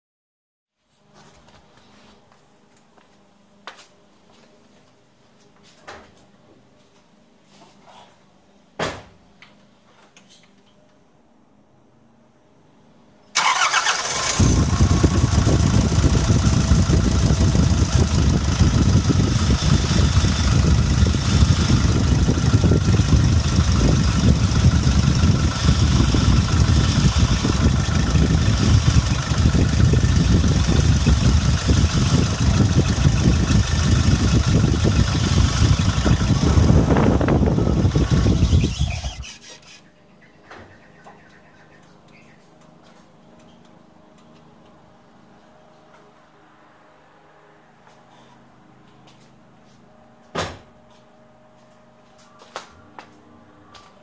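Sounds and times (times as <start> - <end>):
pickup engine starting and idling: 13.4 - 39.5.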